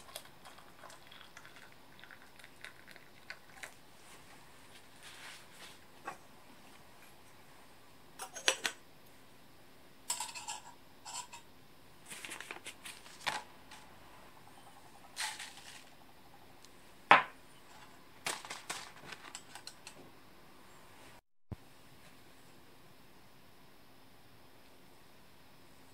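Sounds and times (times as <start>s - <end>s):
paper filter rustling: 12.0s - 13.9s, 18.2s - 19.7s.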